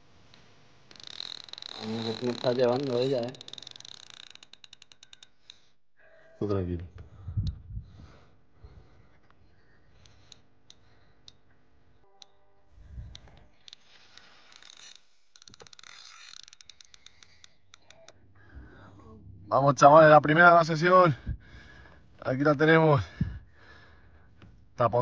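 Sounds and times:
fishing reel clicking: 0.3 - 5.8, 10.0 - 11.4, 12.9 - 18.2.

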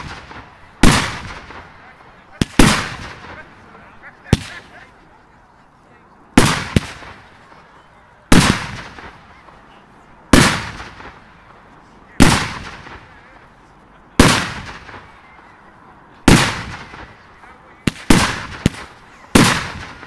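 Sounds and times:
firework bangs with echo: 0.0 - 1.8, 2.4 - 3.4, 4.3 - 4.7, 6.4 - 7.3, 8.3 - 9.3, 10.3 - 11.3, 12.2 - 13.2, 14.2 - 15.1, 16.3 - 17.2, 17.8 - 20.0.

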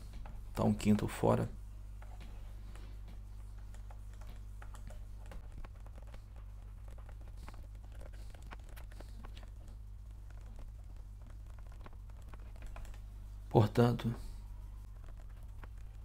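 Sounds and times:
steady low hum: 0.0 - 16.0
stylus tapping on pen tablet: 2.0 - 13.0.

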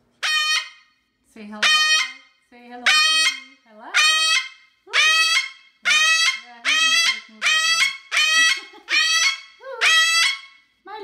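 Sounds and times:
cockatoo screaming: 2.9 - 10.6.

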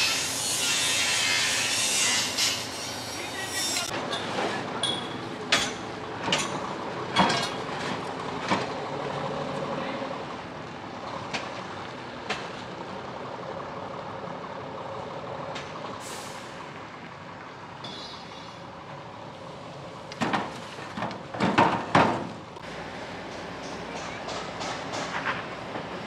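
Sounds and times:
air-brake hisses: 0.0 - 3.9, 16.0 - 16.6.

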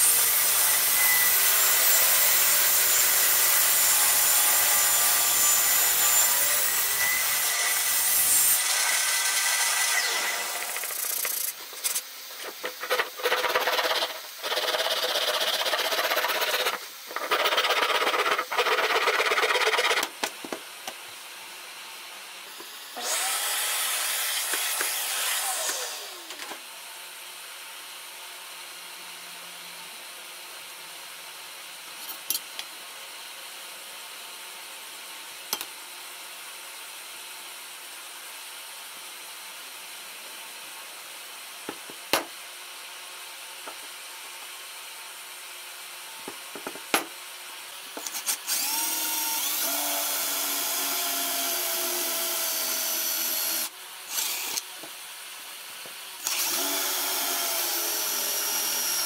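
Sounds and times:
small power tool whining: 8.7 - 20.0, 48.0 - 54.9, 56.2 - 59.0
hand sanding wood: 10.8 - 20.2.

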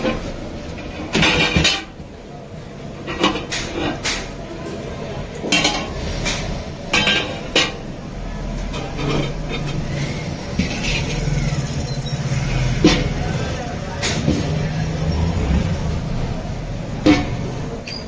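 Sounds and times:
metal pots clanking: 5.4 - 7.9, 16.8 - 18.0.

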